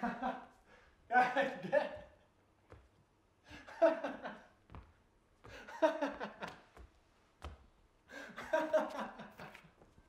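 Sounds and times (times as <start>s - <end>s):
man laughing: 1.1s - 2.2s, 8.2s - 9.7s.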